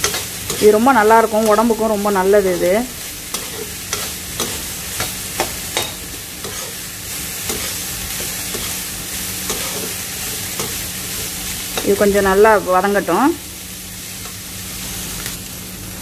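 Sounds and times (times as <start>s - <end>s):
spatula scraping a pan: 0.0s - 1.7s, 3.0s - 12.0s
beans sizzling in oil: 0.0s - 16.0s.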